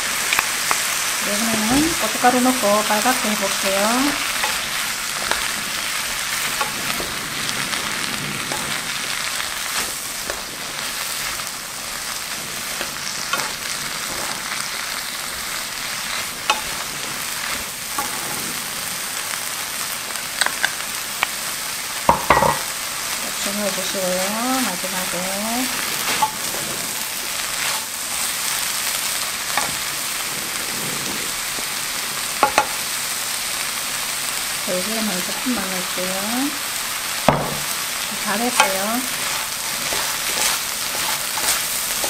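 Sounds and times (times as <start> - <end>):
vegetables sizzling in a pan: 0.0 - 42.0
wooden spoons clicking on pan: 32.4 - 32.7.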